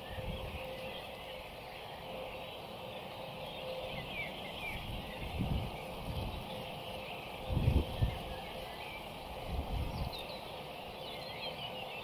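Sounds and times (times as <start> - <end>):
distant birds singing: 0.0 - 12.0.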